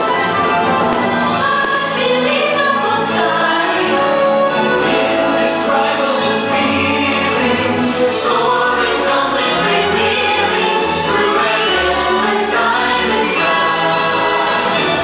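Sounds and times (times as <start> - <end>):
orchestral music with choir: 0.0 - 15.0.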